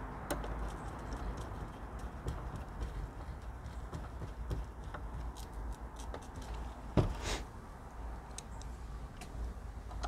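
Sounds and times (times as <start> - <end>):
dull knock: 7.0 - 7.2.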